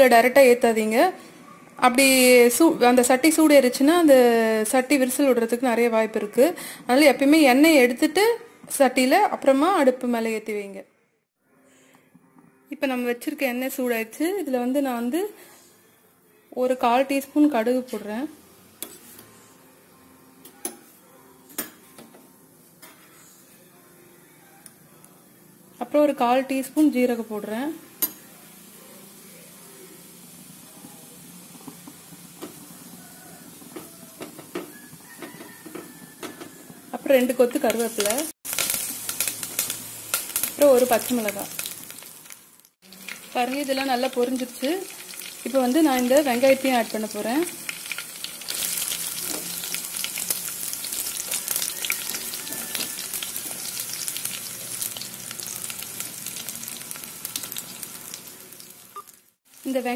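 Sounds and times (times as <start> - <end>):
seeds sizzling in oil: 26.4 - 59.9
seeds popping and crackling: 37.7 - 45.4.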